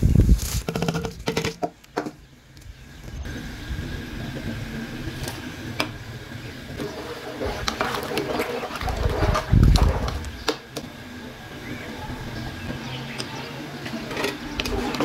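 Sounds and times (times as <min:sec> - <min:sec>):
pot boiling rumble: 0:00.0 - 0:15.0
water splash: 0:06.8 - 0:10.4.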